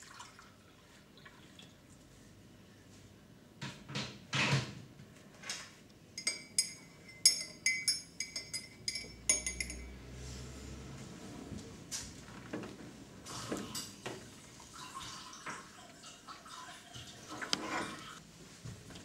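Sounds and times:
teaspoon clinking in mug: 6.2 - 9.9.

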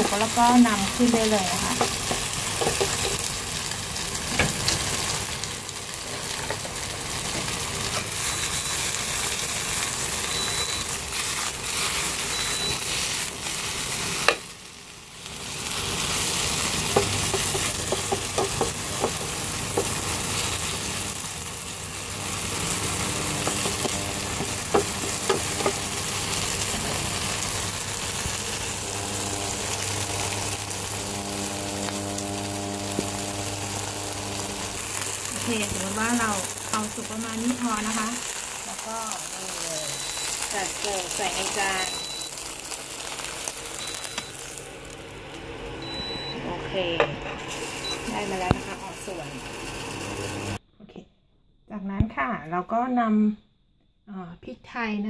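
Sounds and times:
food sizzling in oil: 0.0 - 46.4, 47.4 - 50.6
spatula scraping and tapping pan: 1.8 - 3.3, 16.9 - 20.0, 23.4 - 25.8.

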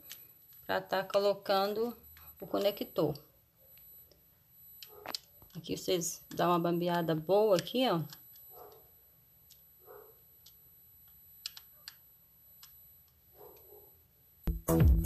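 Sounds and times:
loud electronic music: 14.5 - 15.0.

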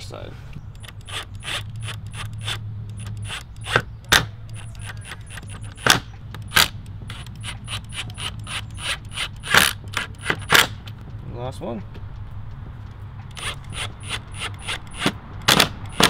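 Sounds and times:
hand ratchet clicking: 0.7 - 10.7, 13.3 - 16.0.

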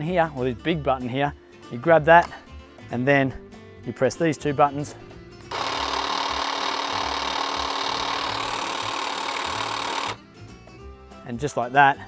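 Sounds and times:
hedge trimmer running: 5.5 - 10.2.

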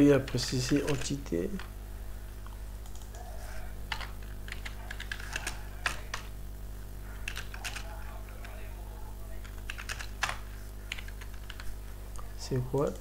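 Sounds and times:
steady low hum: 0.0 - 13.0
typing on keyboard: 0.3 - 1.7, 3.9 - 6.3, 7.2 - 8.6, 9.4 - 11.7.

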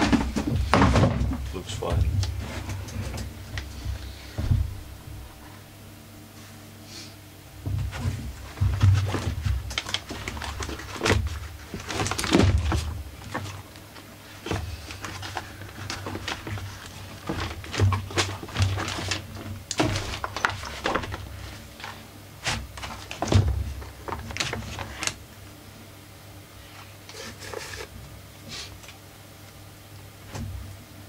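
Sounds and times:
steady low hum: 0.0 - 31.0
hard plastic knocks and rattles: 7.6 - 13.6, 14.4 - 21.3, 22.5 - 25.2.

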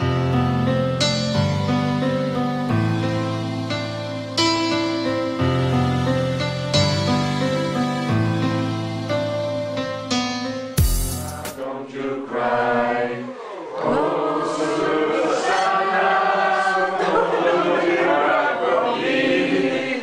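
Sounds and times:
group of voices singing: 10.9 - 20.0.

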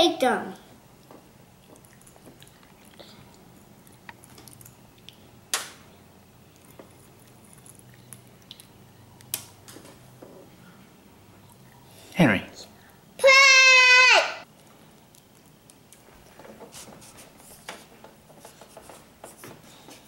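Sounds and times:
toddler chewing: 1.0 - 5.3.

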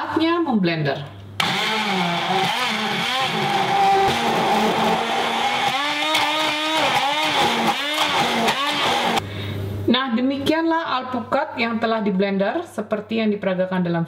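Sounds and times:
stick blender motor whining: 1.4 - 9.2.

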